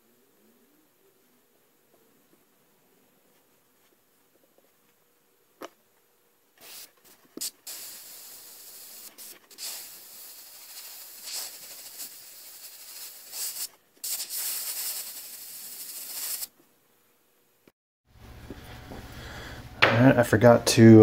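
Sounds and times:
airbrush spraying hiss: 6.6s - 16.5s.

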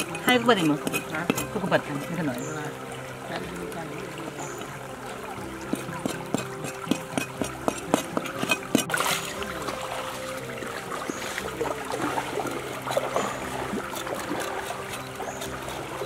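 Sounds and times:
stream water trickling: 0.0s - 16.0s.

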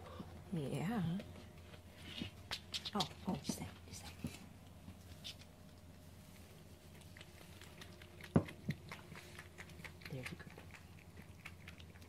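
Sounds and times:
cat chewing food: 4.8s - 12.0s.

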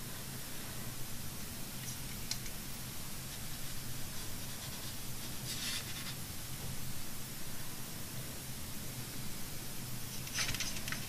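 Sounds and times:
low steady hum: 0.0s - 11.0s
paintbrush on paper: 3.2s - 6.3s.

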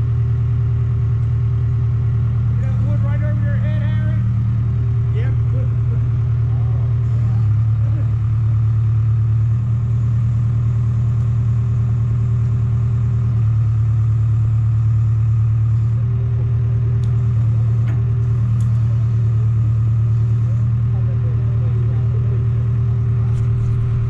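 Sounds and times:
engine running steadily: 0.0s - 24.0s.

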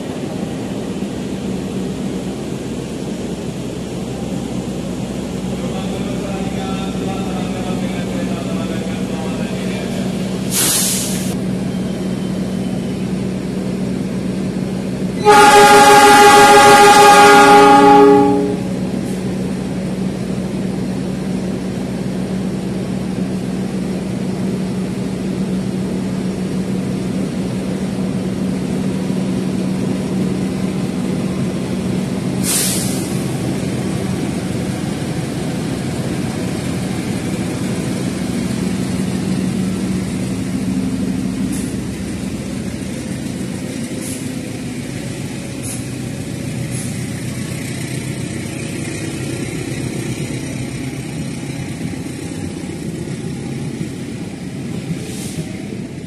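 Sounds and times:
passenger train rumbling past: 0.0s - 56.0s
short hiss: 10.5s - 11.4s, 32.4s - 33.2s
train horn blast: 15.2s - 18.7s.

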